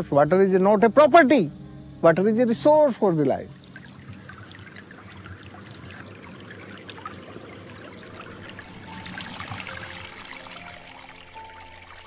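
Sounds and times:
shallow water trickling: 2.4s - 12.0s.

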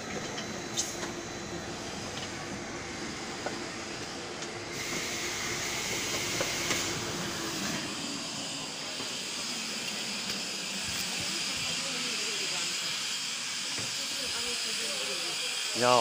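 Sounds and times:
loud hiss: 4.7s - 16.0s.

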